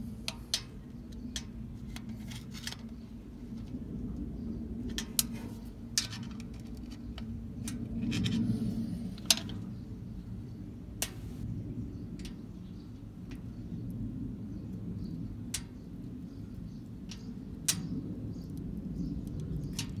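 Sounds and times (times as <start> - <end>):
low steady rumble: 0.0 - 20.0
metallic clicks and taps: 11.0 - 11.4.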